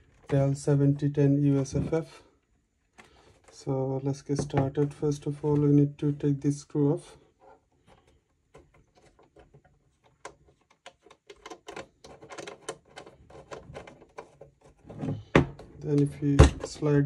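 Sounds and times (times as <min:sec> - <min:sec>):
screw clicking and scraping: 0:08.0 - 0:14.8.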